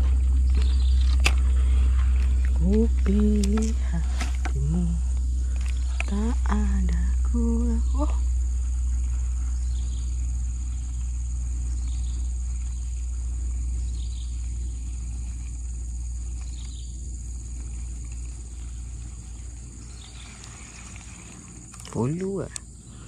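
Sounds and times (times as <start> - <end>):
low rumble: 0.0 - 21.8
faint chirp: 0.0 - 23.0
insects droning: 0.0 - 23.0.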